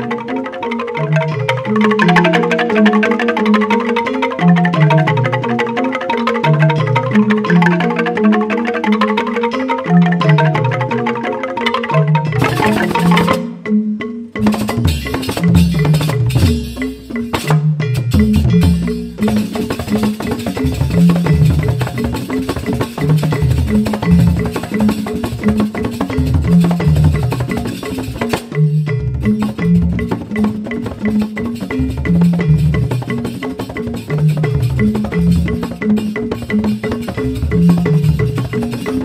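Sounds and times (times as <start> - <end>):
bamboo xylophones playing: 0.0 - 39.0
drum strokes: 10.0 - 13.6, 14.4 - 39.0.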